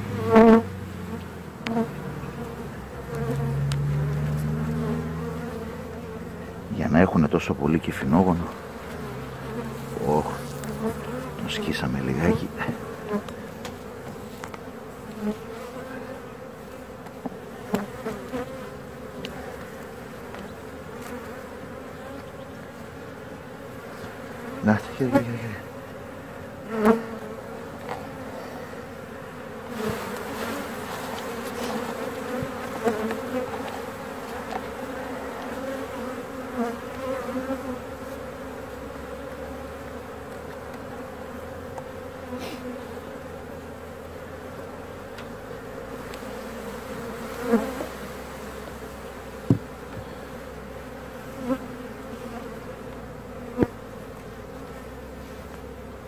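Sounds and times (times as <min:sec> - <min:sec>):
bees buzzing: 0:00.0 - 0:56.0
sharp knocks: 0:49.5 - 0:50.1.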